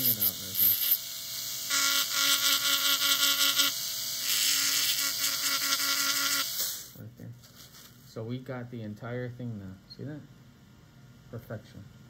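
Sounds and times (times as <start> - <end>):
dental handpiece whining grinding: 0.0 - 6.9.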